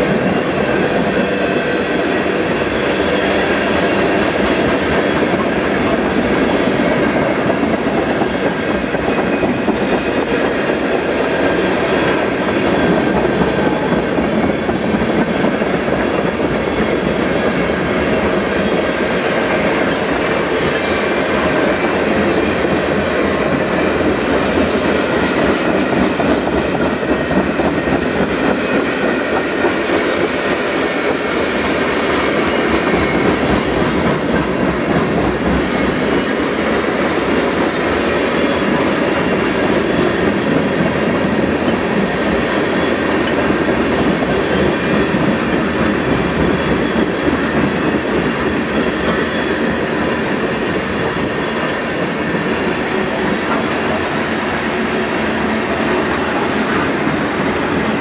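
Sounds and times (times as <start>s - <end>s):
train wheels rolling on rails: 0.0s - 58.0s.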